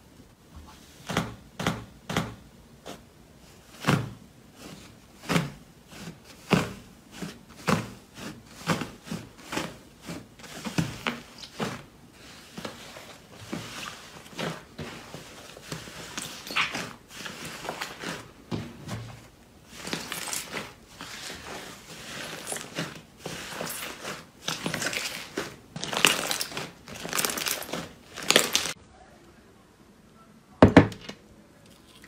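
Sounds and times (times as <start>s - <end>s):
crackly fizz: 19.8s - 28.8s.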